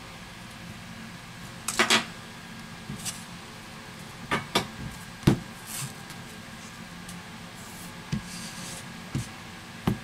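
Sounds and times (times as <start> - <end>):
tablet knocking and clicking on mat: 4.6 - 5.4.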